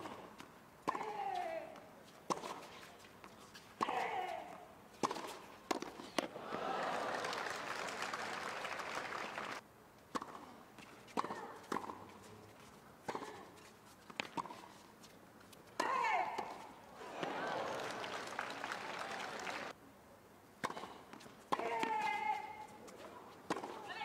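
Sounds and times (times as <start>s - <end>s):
tennis ball hits: 0.0s - 2.7s, 3.8s - 6.4s, 23.4s - 23.9s
shoes squeaking: 0.0s - 6.3s, 10.8s - 16.8s
crowd applauding: 6.3s - 9.6s, 17.0s - 19.8s.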